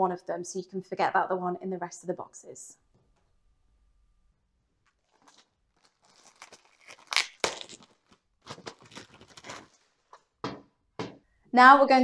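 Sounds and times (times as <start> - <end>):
plastic bag crinkling: 4.8 - 10.2.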